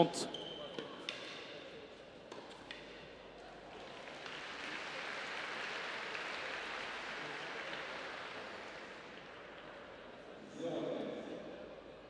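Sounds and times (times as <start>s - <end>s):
crowd applause: 4.0s - 9.2s.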